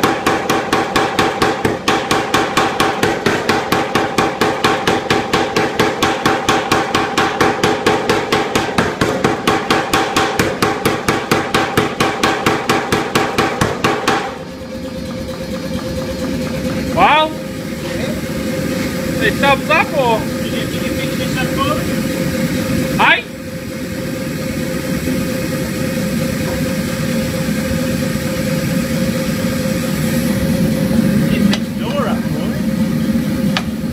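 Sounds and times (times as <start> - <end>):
power hammer striking metal: 0.0 - 17.1, 33.5 - 33.8
steady machine hum: 0.0 - 33.9.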